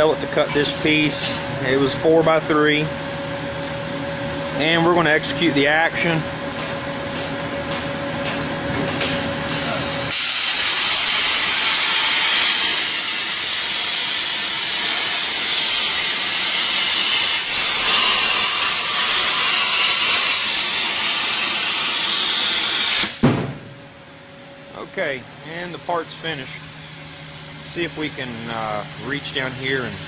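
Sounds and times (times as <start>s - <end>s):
machine hum: 0.0s - 30.0s
plasma torch arc hissing: 9.1s - 23.2s, 25.4s - 30.0s.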